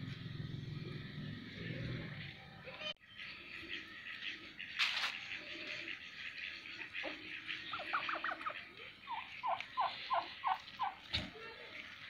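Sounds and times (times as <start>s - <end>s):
turkeys gobbling: 3.5s - 11.1s.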